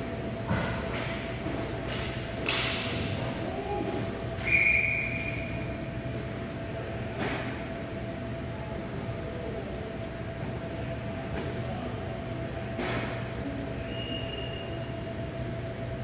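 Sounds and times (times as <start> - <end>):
steady hum: 0.0 - 16.0
high whistle blast: 4.4 - 5.6.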